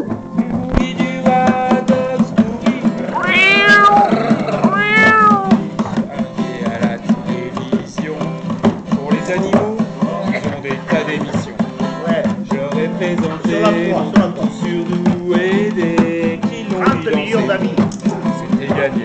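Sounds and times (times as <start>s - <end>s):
acoustic guitar strumming: 0.2s - 19.0s
person wailing: 3.1s - 5.5s.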